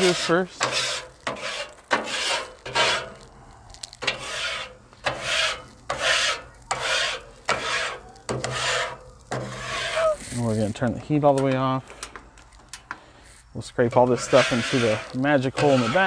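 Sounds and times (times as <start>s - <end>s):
metal scraper rasping on steel griddle: 0.0s - 3.3s, 4.0s - 10.5s, 13.8s - 16.0s.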